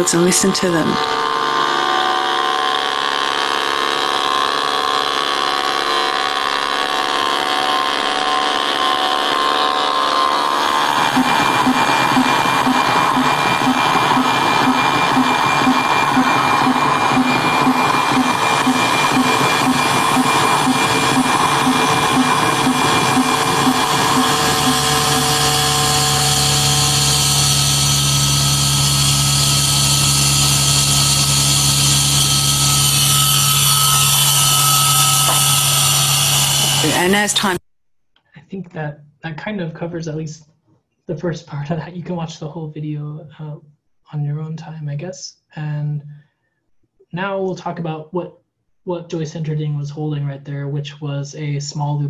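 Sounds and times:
electrical buzz and whine: 0:00.0 - 0:37.6
pulsing tone: 0:00.0 - 0:37.6
steady low hum: 0:10.4 - 0:37.6.

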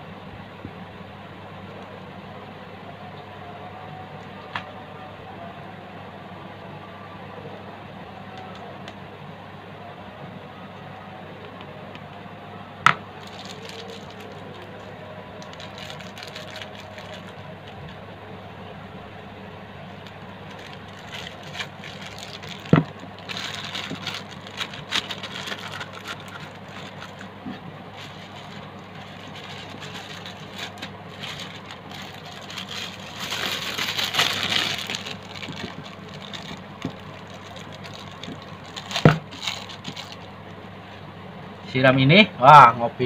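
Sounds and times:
steady low hum: 0:00.0 - 0:43.0
plastic bags rustling: 0:13.1 - 0:17.9, 0:19.8 - 0:40.3.

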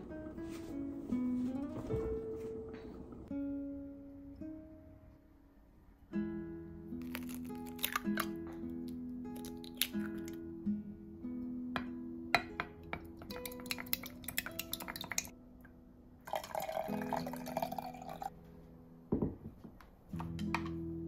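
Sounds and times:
liquid pouring into jug: 0:13.3 - 0:15.3, 0:16.2 - 0:18.3.

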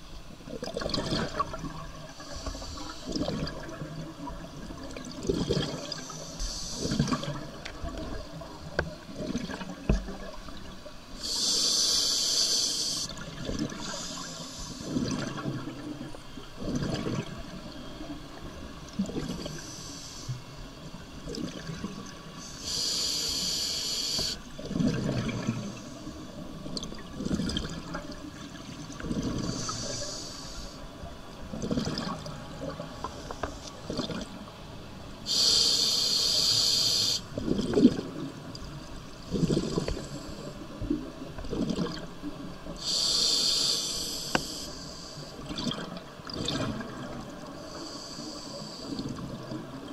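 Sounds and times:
regulator hissing inhalation: 0:11.2 - 0:13.1, 0:22.4 - 0:24.4, 0:29.4 - 0:30.8, 0:35.3 - 0:37.3, 0:42.8 - 0:45.3, 0:47.6 - 0:48.9
bubbling exhalations: 0:39.3 - 0:40.0.

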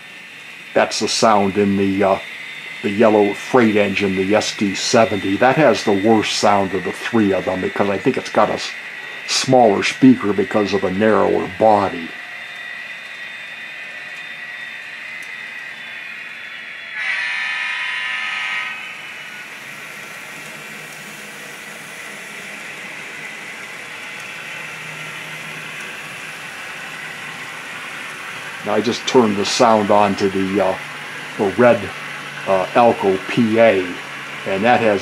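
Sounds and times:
model train diesel engine sound: 0:00.0 - 0:35.0
multi-tone horn blast: 0:17.0 - 0:18.9.

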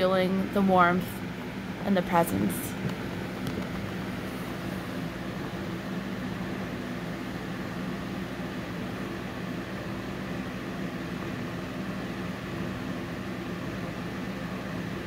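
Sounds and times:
motor hum and whir: 0:00.0 - 0:15.0.

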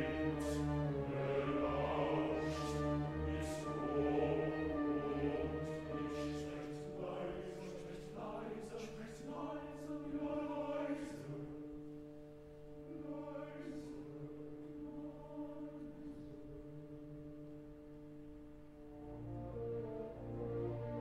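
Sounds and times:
held orchestral chords: 0:00.0 - 0:08.6, 0:18.9 - 0:21.0
male chorus singing softly: 0:00.0 - 0:11.9, 0:12.8 - 0:17.1.

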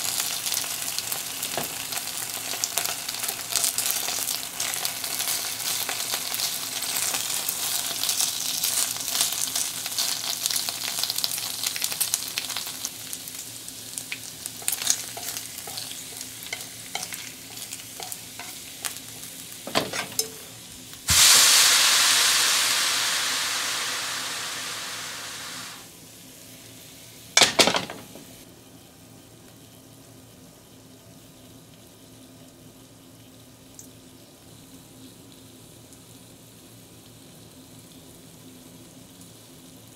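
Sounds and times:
bacon sizzling in frying pan: 0:00.0 - 0:28.4, 0:29.7 - 0:39.9
sudden loud hiss: 0:19.7 - 0:25.9.

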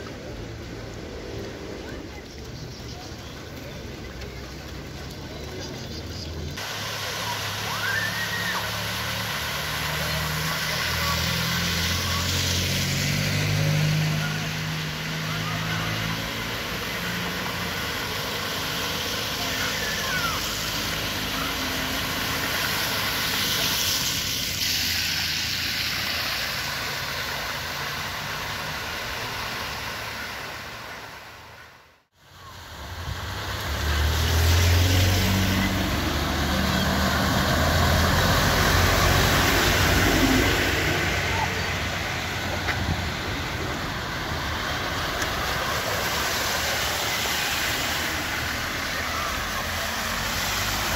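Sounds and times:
car engines humming: 0:00.0 - 0:31.6, 0:32.4 - 0:50.9
tyres splashing through water: 0:00.0 - 0:50.9.

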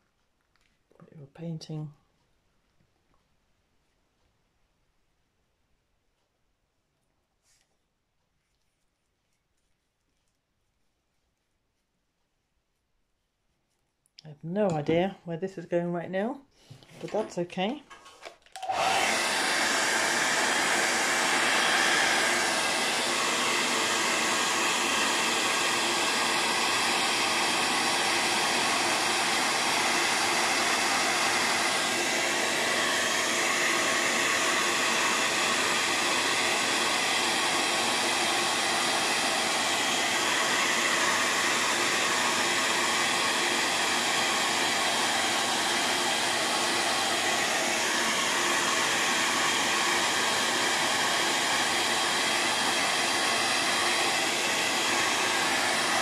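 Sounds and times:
hair dryer blowing: 0:17.0 - 0:17.4, 0:18.5 - 0:56.0.

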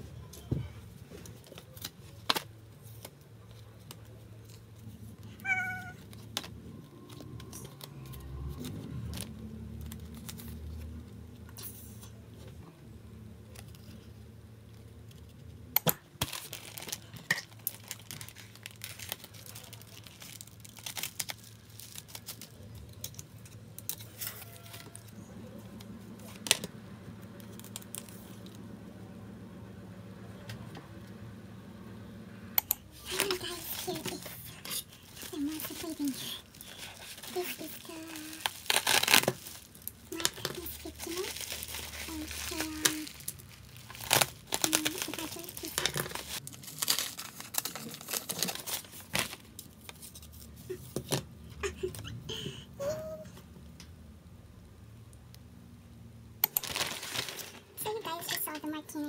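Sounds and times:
low steady hum: 0:00.0 - 0:59.0
card and plastic sleeves rustling: 0:00.9 - 0:12.0, 0:16.2 - 0:25.2, 0:27.3 - 0:28.6, 0:32.9 - 0:51.2, 0:56.4 - 0:58.8.

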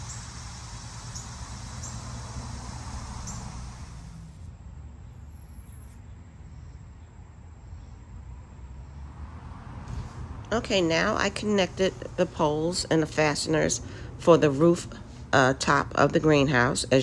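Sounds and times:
hiss: 0:00.0 - 0:04.5
steady low hum: 0:00.0 - 0:17.0.

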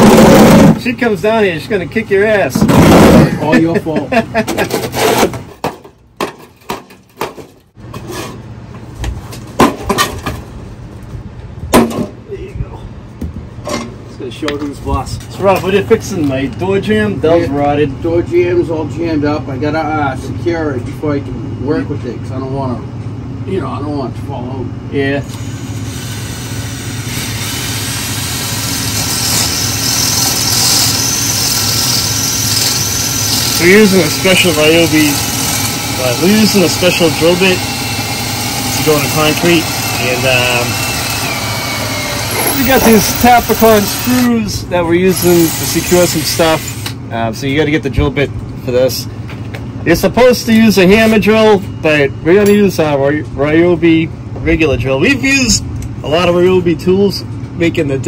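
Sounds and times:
shovel scraping on concrete: 0:04.4 - 0:05.7, 0:07.9 - 0:08.4
drill grinding into concrete: 0:25.2 - 0:47.0.

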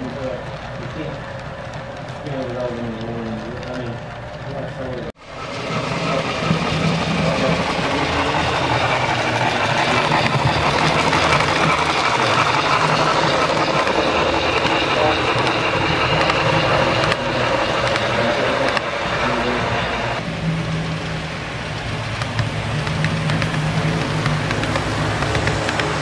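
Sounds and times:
model train cars rolling: 0:00.0 - 0:26.0.

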